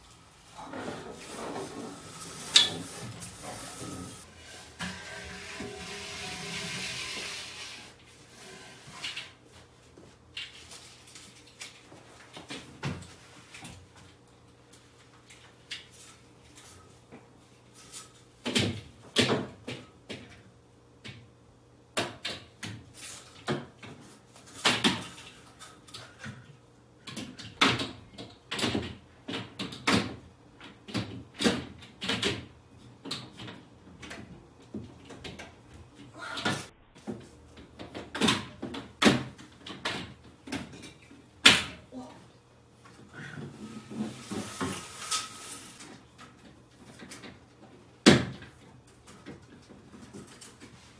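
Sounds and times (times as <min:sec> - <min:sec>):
venetian blind clattering: 0:00.0 - 0:09.4, 0:43.6 - 0:46.4.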